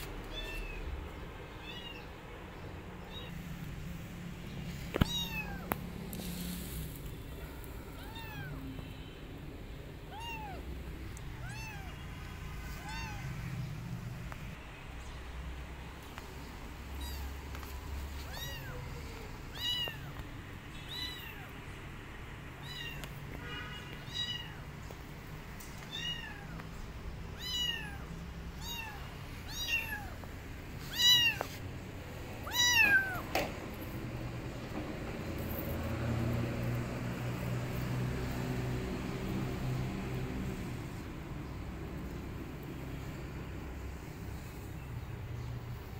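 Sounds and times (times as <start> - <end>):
kitten meowing: 0.2 - 0.9, 1.5 - 2.2, 3.0 - 3.4, 4.9 - 5.8, 7.3 - 9.0, 10.0 - 12.1, 12.7 - 13.6, 16.8 - 20.2, 20.9 - 21.5, 22.6 - 23.2, 24.1 - 24.6, 25.8 - 26.6, 27.4 - 31.6, 32.4 - 33.3.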